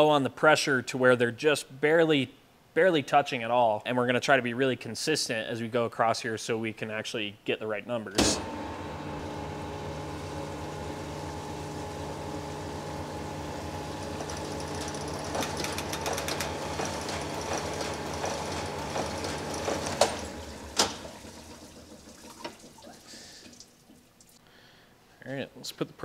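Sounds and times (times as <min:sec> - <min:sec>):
honing machine motor hum: 0:08.1 - 0:21.4.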